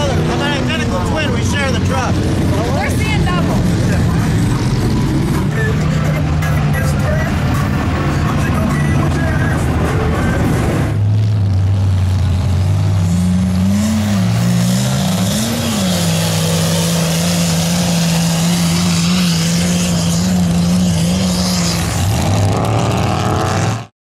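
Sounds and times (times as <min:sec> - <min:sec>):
truck engine running hard: 0:00.0 - 0:23.9
mud and water spraying: 0:13.8 - 0:23.4.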